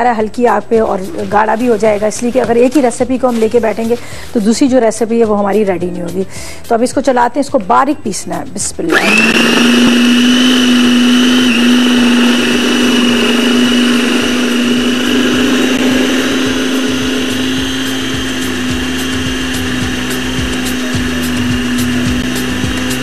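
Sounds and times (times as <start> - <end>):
food processor motor whining: 8.9 - 23.0.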